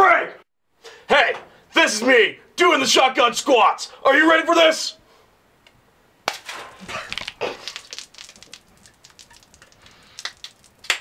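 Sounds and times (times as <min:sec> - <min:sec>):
beer can popping open: 0:06.2 - 0:11.0
beer gushing and gulping: 0:06.8 - 0:11.0.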